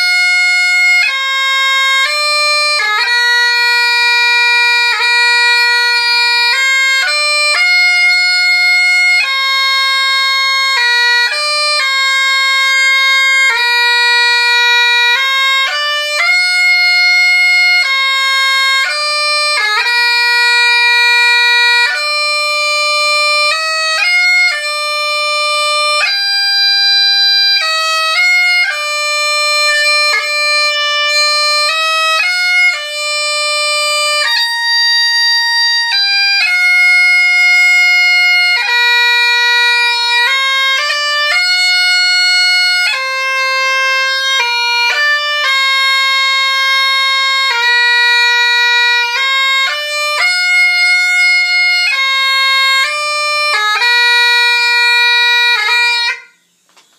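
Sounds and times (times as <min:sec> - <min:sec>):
bagpipe melody: 0:00.0 - 0:56.9.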